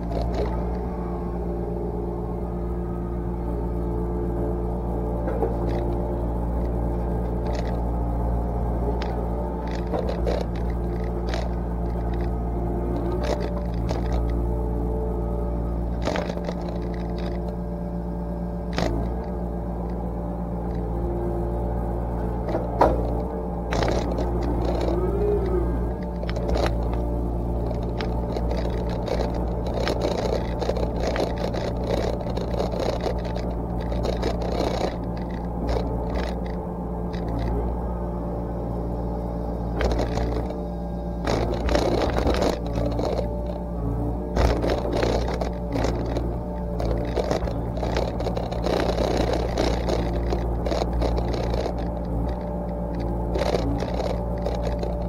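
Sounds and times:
diesel excavator engine running: 0:00.0 - 0:55.0
brush and branches snapping: 0:22.4 - 0:37.6, 0:39.8 - 0:40.6, 0:41.2 - 0:55.0.

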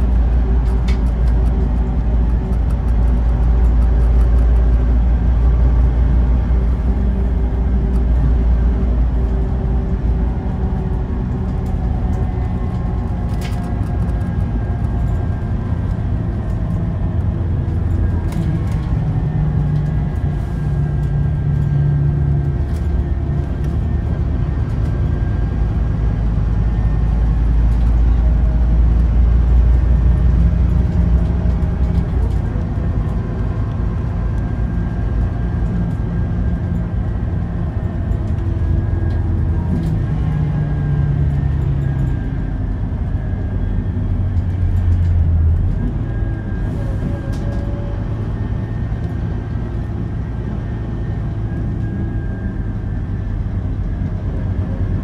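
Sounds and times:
bus diesel drone: 0:00.0 - 0:55.0
road rumble: 0:00.0 - 0:55.0.

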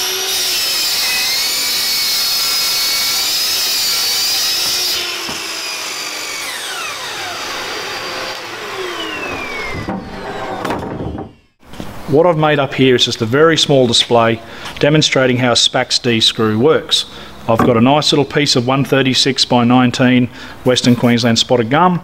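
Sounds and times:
mitre saw whining: 0:00.0 - 0:11.6
dust extractor running: 0:04.7 - 0:10.7.

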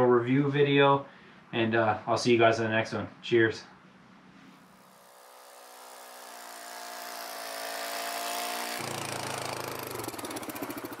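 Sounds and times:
atv engine passing by: 0:04.8 - 0:11.0.

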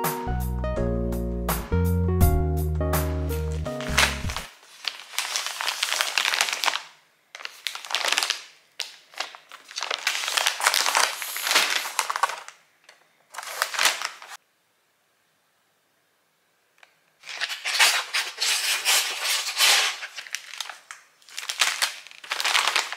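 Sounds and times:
packaging crinkling and rustling: 0:03.6 - 0:14.4, 0:17.2 - 0:22.9.

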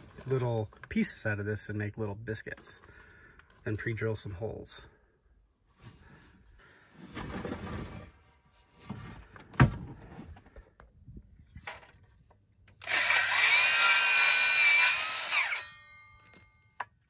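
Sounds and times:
circular saw cutting wood: 0:12.8 - 0:16.0.

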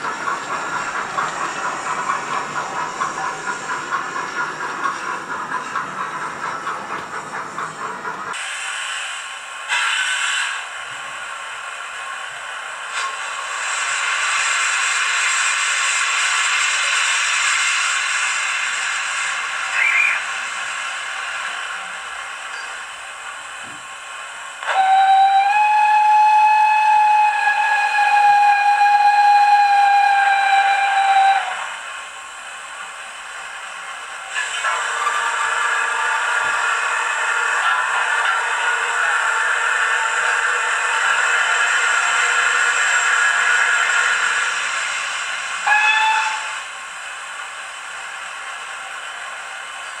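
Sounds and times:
steam hiss: 0:00.0 - 0:50.0
steam locomotive chuffing: 0:00.0 - 0:50.0
steam whistle through speaker: 0:24.6 - 0:31.7, 0:45.6 - 0:46.7.

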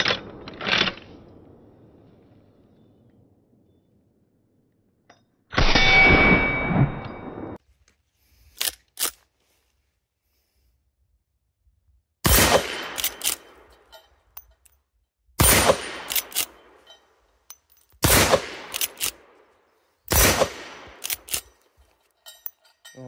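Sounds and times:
rifle lever metallic clicks: 0:08.6 - 0:09.2, 0:12.8 - 0:14.8, 0:16.0 - 0:18.0, 0:18.6 - 0:19.2, 0:20.9 - 0:23.0
rifle gunshots with echo: 0:12.2 - 0:13.8, 0:15.4 - 0:16.8, 0:18.0 - 0:19.5, 0:20.1 - 0:21.3.

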